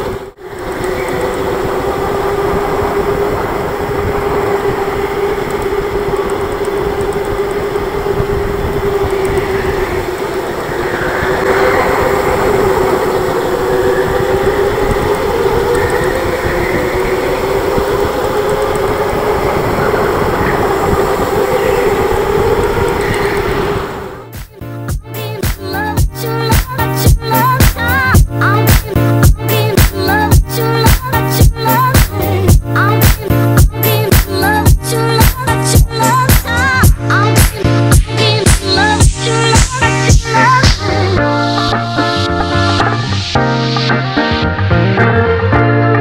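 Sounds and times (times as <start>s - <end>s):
electric go-kart motor whining: 0.0s - 24.3s
tyres rumbling on track: 0.0s - 43.4s.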